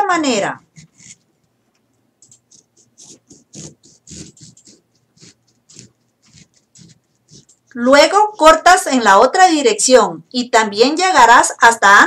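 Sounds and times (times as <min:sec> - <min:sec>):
knife slicing lime: 0:02.4 - 0:07.6.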